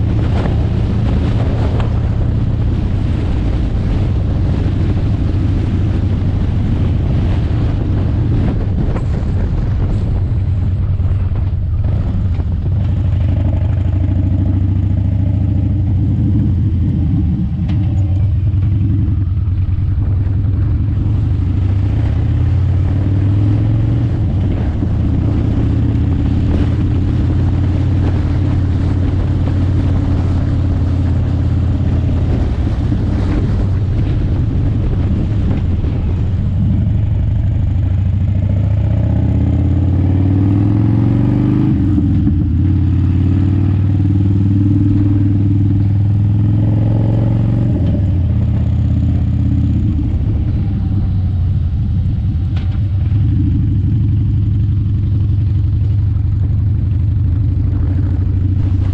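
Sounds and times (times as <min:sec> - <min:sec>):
motorcycle engine running: 0:00.0 - 0:58.9
wind and road noise: 0:00.0 - 0:58.9.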